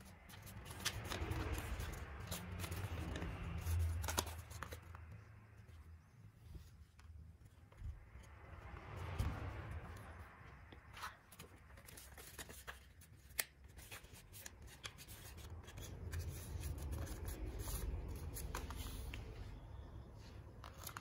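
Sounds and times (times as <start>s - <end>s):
paper rustling and crinkling: 0.0s - 5.2s, 10.9s - 19.5s, 20.2s - 21.0s.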